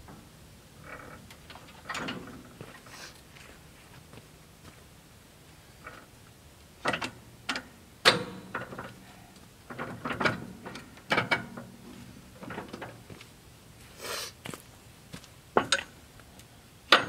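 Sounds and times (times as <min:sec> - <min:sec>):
metal clamp clanking and rattling: 0:01.4 - 0:02.5.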